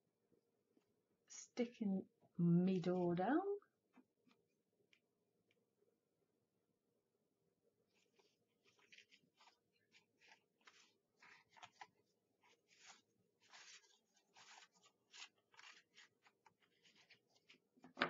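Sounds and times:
paper rustling and scraping: 0:07.9 - 0:18.0.

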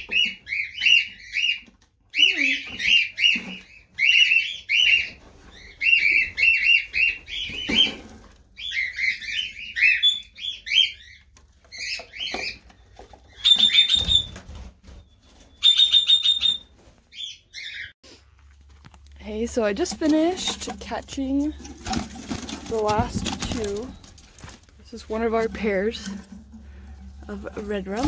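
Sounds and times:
parakeets chirping: 0:00.0 - 0:14.4, 0:15.6 - 0:18.0
wings fluttering: 0:11.5 - 0:17.3, 0:19.6 - 0:28.0.

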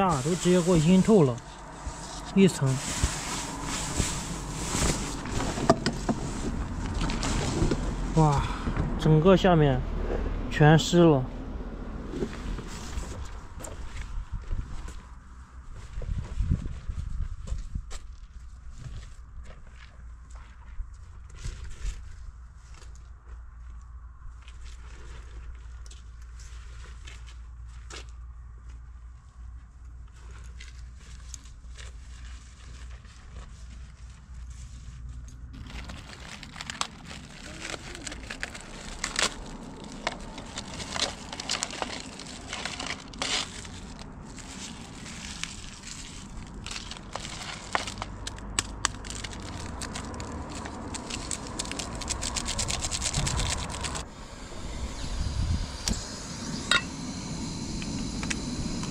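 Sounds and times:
plastic and foil crinkling: 0:00.0 - 0:08.4, 0:30.1 - 0:54.0
low rumble: 0:00.0 - 0:23.1, 0:33.8 - 0:58.9.

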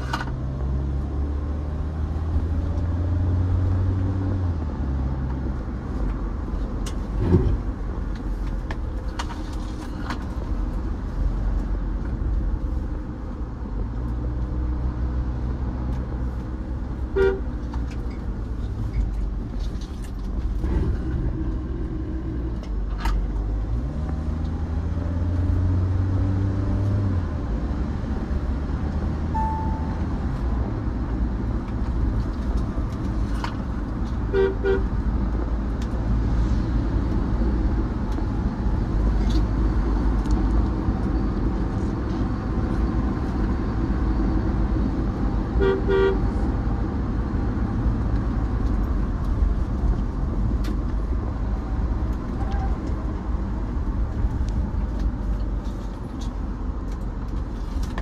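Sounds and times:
car engine and road noise: 0:00.0 - 0:58.0
car horn toots: 0:17.2 - 0:17.5, 0:34.3 - 0:34.9, 0:45.6 - 0:46.2.

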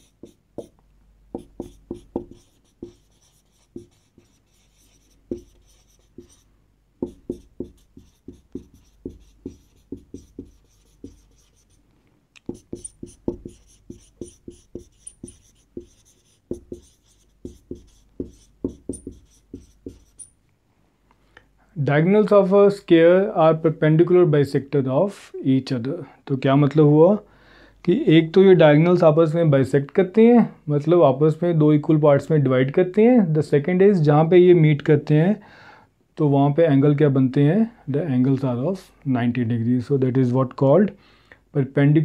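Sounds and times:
marker writing on whiteboard: 0:00.0 - 0:11.8, 0:12.4 - 0:20.3
marker squeaks: 0:12.5 - 0:20.3.

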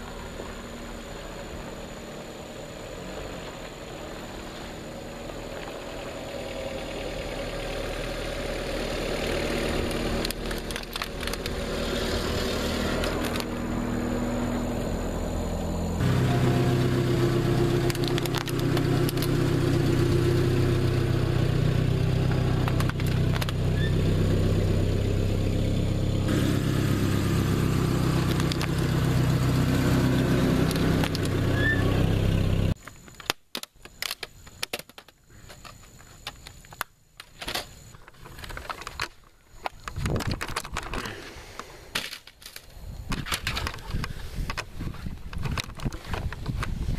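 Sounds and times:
truck engine at low revs: 0:00.0 - 0:32.8
plastic laptop clicks and rattles: 0:09.9 - 0:11.6, 0:32.8 - 0:41.1, 0:45.3 - 0:46.7.

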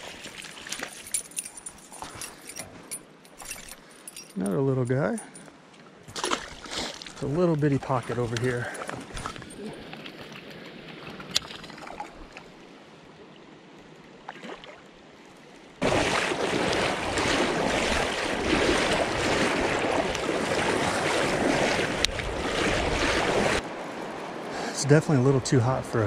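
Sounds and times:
fast creek water rushing: 0:15.8 - 0:26.0
flowing water hiss: 0:24.3 - 0:26.0.

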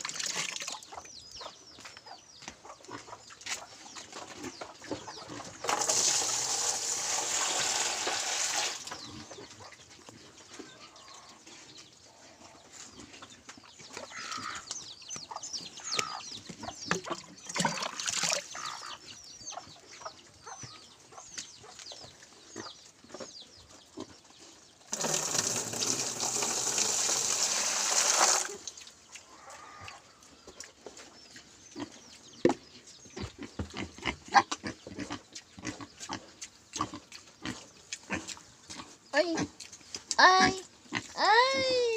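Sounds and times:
water pouring into plastic tray: 0:05.7 - 0:08.9, 0:24.9 - 0:28.7
faint animal calls: 0:29.2 - 0:30.1.

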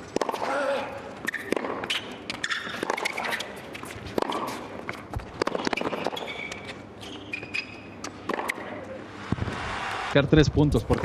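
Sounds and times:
racket striking tennis ball: 0:00.1 - 0:00.6, 0:01.2 - 0:06.6, 0:08.3 - 0:08.8
ball bouncing: 0:01.2 - 0:03.3, 0:04.2 - 0:06.7, 0:07.4 - 0:08.8
shoe squeaks: 0:01.2 - 0:08.1.

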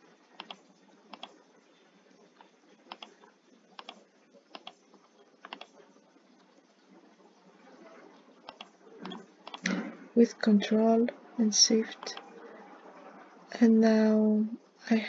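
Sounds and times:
computer mouse and keyboard clicks: 0:00.4 - 0:01.4, 0:02.4 - 0:05.8, 0:08.4 - 0:09.9.

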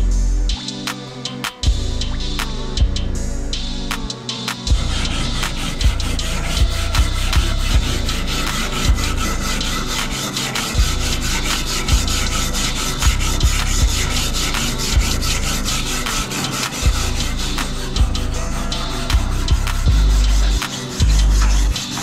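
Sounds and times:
stiff brush scrubbing metal blade: 0:04.7 - 0:22.0.

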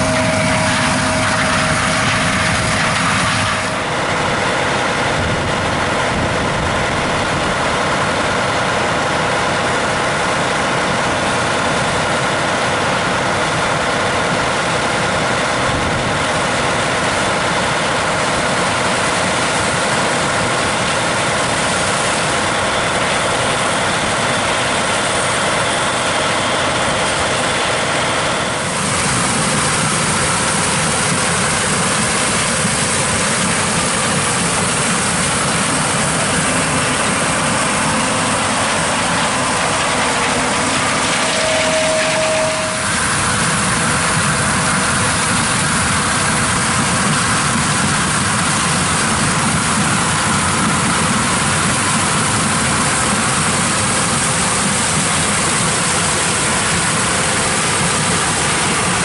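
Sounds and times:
diesel engine running: 0:00.0 - 0:59.0
low engine drone: 0:00.0 - 0:59.0.

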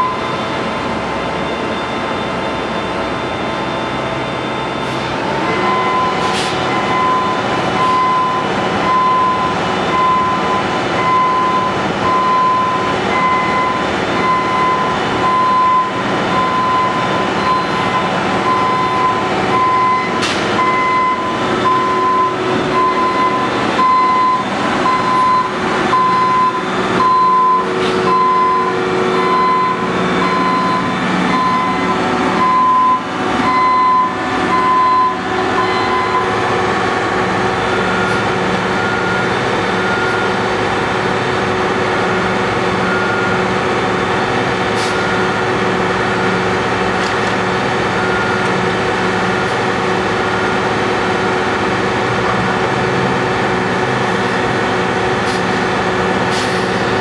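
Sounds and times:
high-pitched back-up beep: 0:00.0 - 0:00.5, 0:05.5 - 0:36.5
heavy diesel engine: 0:00.0 - 0:57.0
truck back-up alarm beeping: 0:00.0 - 0:57.0.

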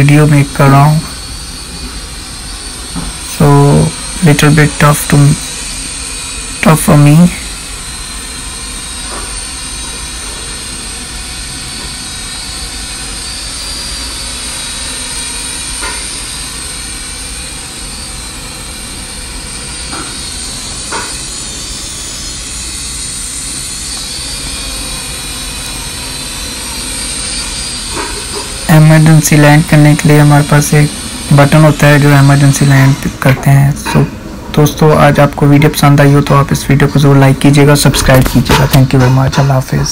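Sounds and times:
toy drone propellers whirring: 0:00.0 - 0:33.7.

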